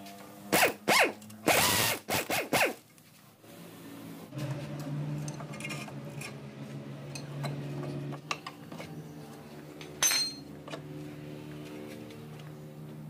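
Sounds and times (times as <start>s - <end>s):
pry bar clinking on metal: 10.0s - 10.5s.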